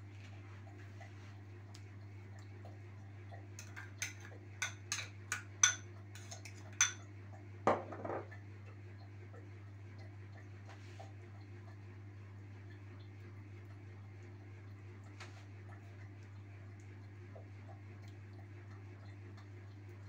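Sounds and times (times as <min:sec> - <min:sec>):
spoon clinking against glass bowl: 0:03.6 - 0:07.0
spoon scraping bowl: 0:03.6 - 0:07.0.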